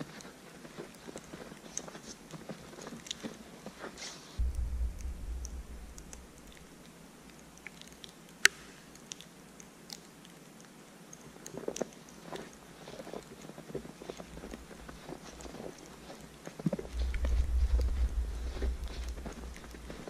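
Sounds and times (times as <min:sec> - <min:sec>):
faint ticks: 0:04.4 - 0:20.0
footsteps crunching in snow: 0:12.8 - 0:20.0.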